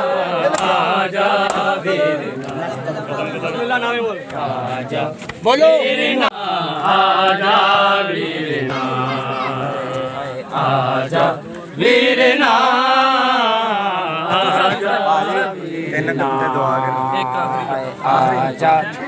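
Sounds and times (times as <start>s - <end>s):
men chanting: 0.0s - 19.0s.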